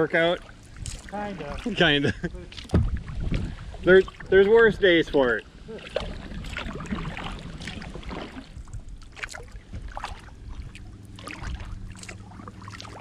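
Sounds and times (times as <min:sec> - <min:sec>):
paddle splashing in water: 0:00.0 - 0:04.8, 0:05.4 - 0:13.0
water lapping at hull: 0:00.0 - 0:13.0
wind rumble on microphone: 0:00.4 - 0:13.0.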